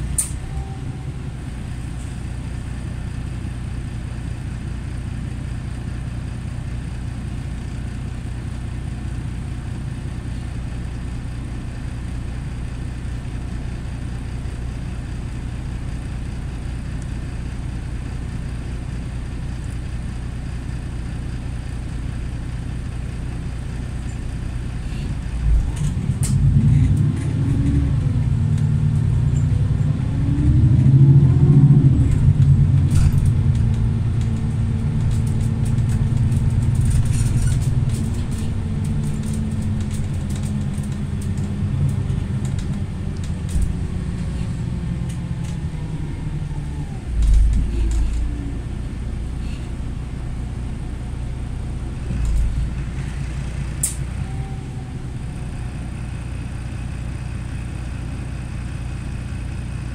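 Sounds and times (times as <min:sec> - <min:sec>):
bus engine hum and whine: 0:00.0 - 0:59.9.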